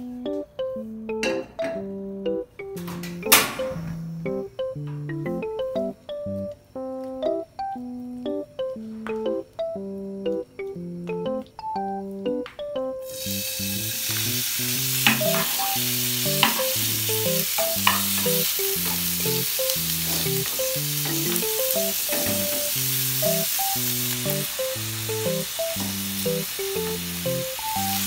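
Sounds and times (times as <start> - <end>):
background music: 0.0 - 28.0
meat sizzling in a frying pan: 13.0 - 28.0.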